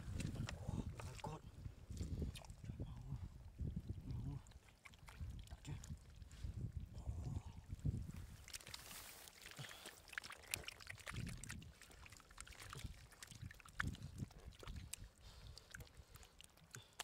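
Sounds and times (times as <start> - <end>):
hands squelching through wet mud: 4.0 - 6.7, 8.0 - 17.0.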